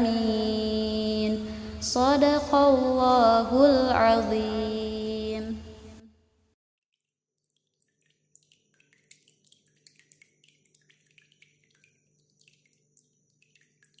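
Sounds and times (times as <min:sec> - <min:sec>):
water droplets dripping: 0:06.9 - 0:14.0.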